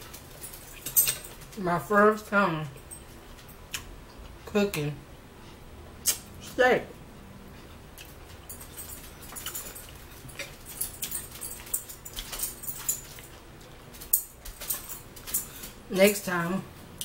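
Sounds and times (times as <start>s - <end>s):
chewing steak: 7.4s - 15.9s.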